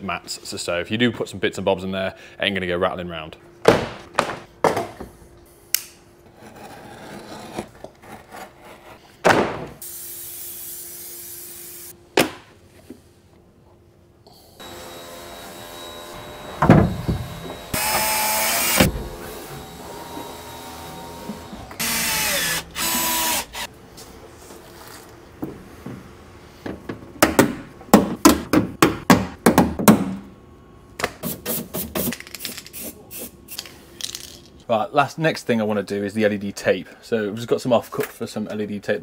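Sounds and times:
knocks and thuds: 3.6s - 5.0s, 9.2s - 9.8s
cordless drill-driver running: 14.6s - 16.6s, 17.3s - 23.7s.

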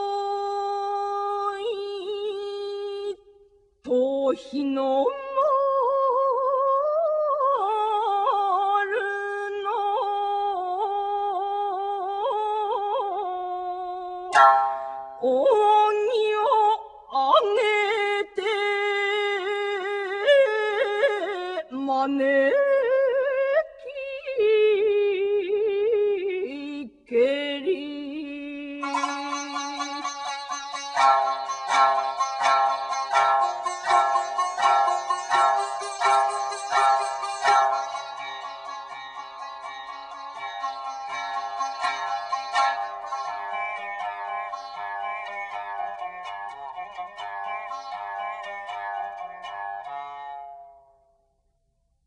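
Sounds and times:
plucked string stroke: 14.3s - 15.5s, 28.8s - 50.8s
solo voice chanting melismatic notes: 28.8s - 44.8s.

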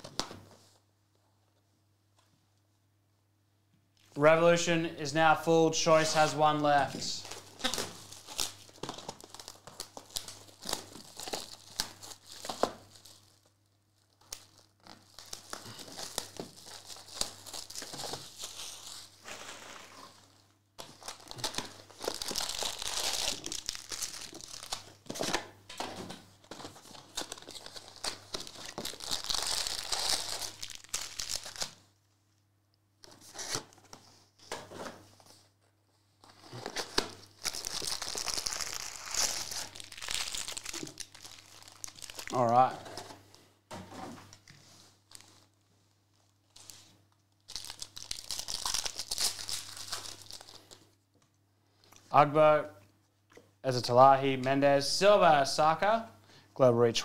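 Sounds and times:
foil packs crinkling: 6.0s - 25.3s, 26.4s - 31.8s, 36.2s - 43.1s, 46.5s - 50.9s
packaging being torn open: 7.2s - 13.4s, 20.8s - 25.4s, 26.9s - 31.8s, 36.5s - 42.7s, 47.5s - 50.7s.

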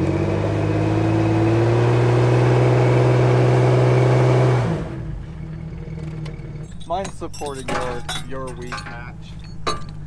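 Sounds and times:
engine revving high: 0.0s - 5.2s.

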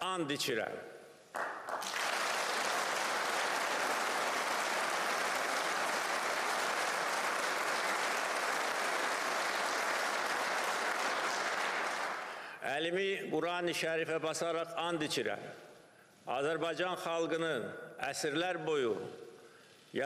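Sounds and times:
audience applauding: 1.4s - 12.5s.

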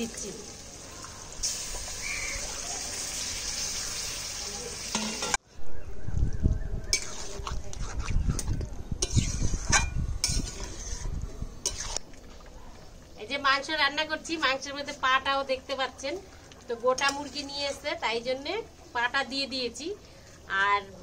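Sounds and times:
chicken sizzling in oil: 0.0s - 5.4s
spatula scraping a pan: 6.9s - 12.0s.

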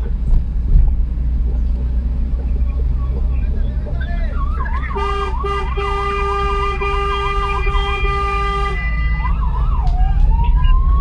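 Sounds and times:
engine and road rumble: 0.0s - 11.0s
vehicle siren yelping and wailing: 3.9s - 11.0s.

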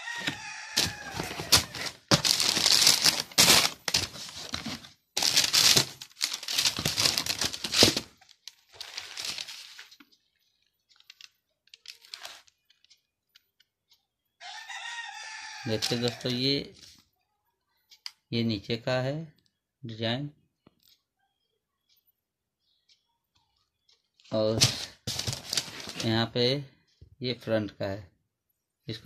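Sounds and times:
packing paper crumpling: 0.7s - 9.9s, 11.0s - 12.5s, 24.6s - 26.1s.

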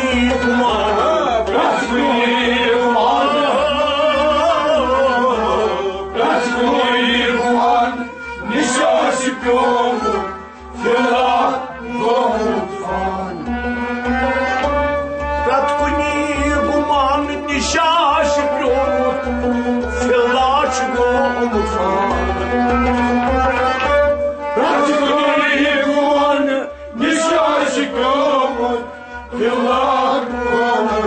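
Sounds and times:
person singing: 0.0s - 14.2s, 24.5s - 31.0s
harmonium chords: 0.0s - 31.0s.

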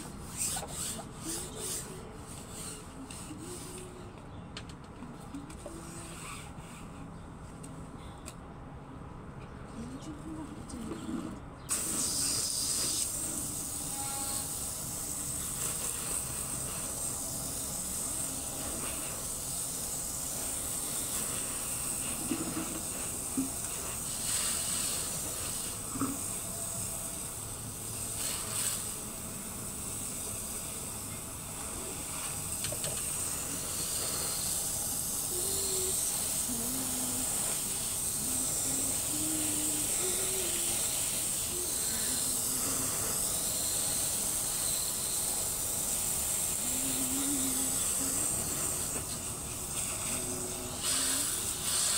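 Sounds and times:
hose nozzle spray hissing: 11.7s - 51.9s.

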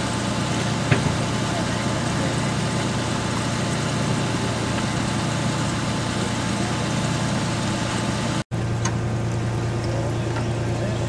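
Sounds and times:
locomotive engine idling: 0.0s - 11.0s.

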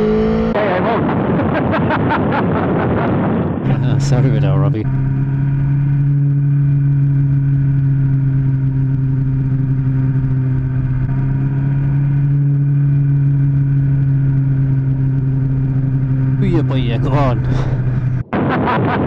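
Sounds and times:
motorcycle engine droning: 0.0s - 19.0s
wind rumble on microphone: 0.5s - 5.2s.

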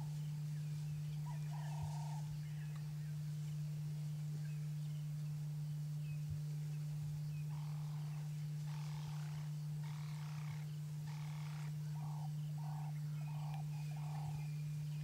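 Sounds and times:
steady low hum: 0.0s - 15.0s
croaking animal calls: 1.2s - 2.4s, 7.5s - 14.5s.

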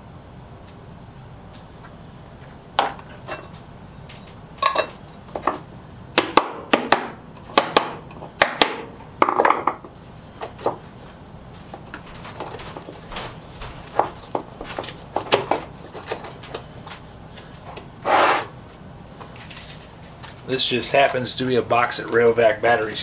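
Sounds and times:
short scrape: 18.0s - 18.5s.

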